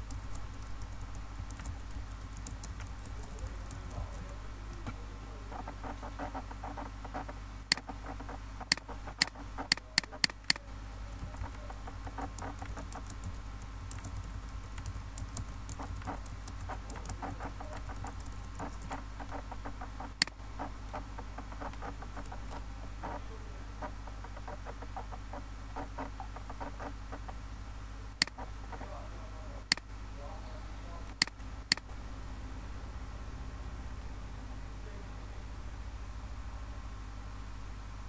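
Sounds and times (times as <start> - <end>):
typing on computer keyboard: 0.0 - 5.0, 11.2 - 20.4
steady low hum: 0.0 - 38.0.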